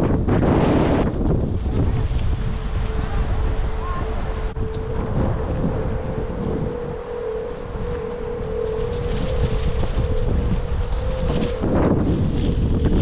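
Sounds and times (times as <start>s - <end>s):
steady hum: 0.0s - 13.0s
wind buffeting microphone: 0.0s - 13.0s.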